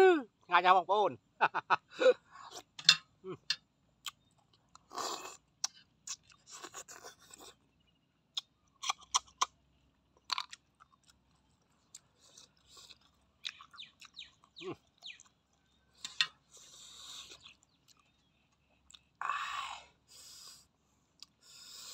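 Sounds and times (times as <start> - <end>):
person chewing: 3.4 - 7.7, 8.3 - 19.2
person slurping snails: 4.8 - 7.6, 16.0 - 17.6.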